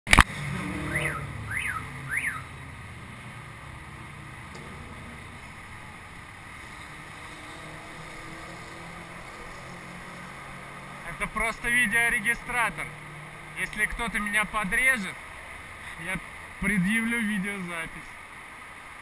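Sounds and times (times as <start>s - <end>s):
wind and road noise: 0.1s - 19.0s
whistle-like tones: 0.8s - 2.5s.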